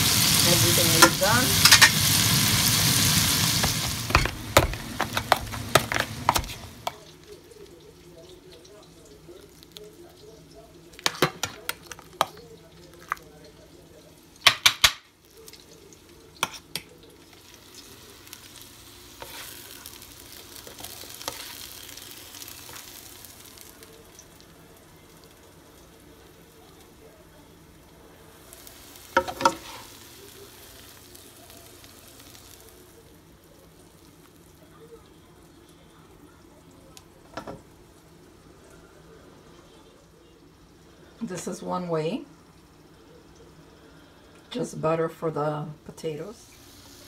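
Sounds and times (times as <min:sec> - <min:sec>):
vegetables sizzling in frying pan: 0:00.0 - 0:47.0.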